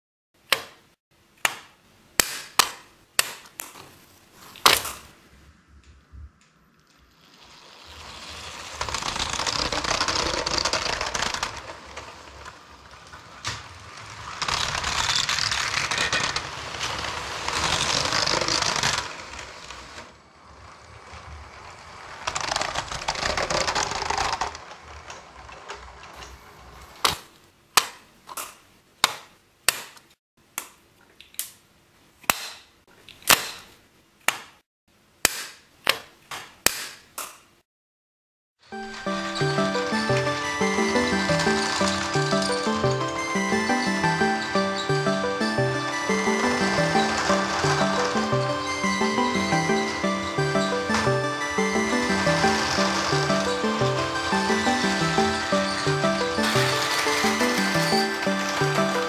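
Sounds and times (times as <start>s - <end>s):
toy train rattling on plastic track: 6.9s - 27.2s, 38.8s - 59.0s
sharp plastic clicks and clacks: 8.7s - 20.1s, 21.1s - 26.3s.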